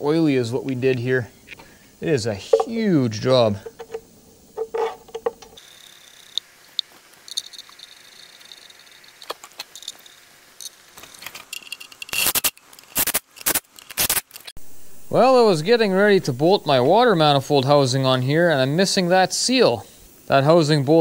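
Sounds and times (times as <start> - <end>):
metallic clicks and scrapes: 3.6 - 5.6.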